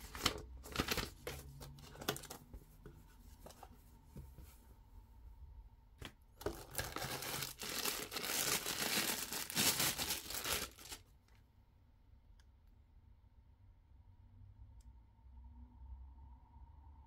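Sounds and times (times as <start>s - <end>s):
packaging rustling: 0.0s - 2.4s, 6.4s - 11.0s.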